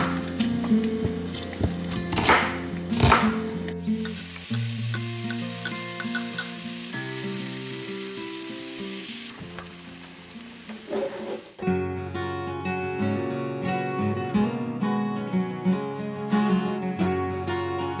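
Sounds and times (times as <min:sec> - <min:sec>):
soft guitar music: 0:00.0 - 0:18.0
vegetables sizzling in skillet: 0:02.4 - 0:11.7.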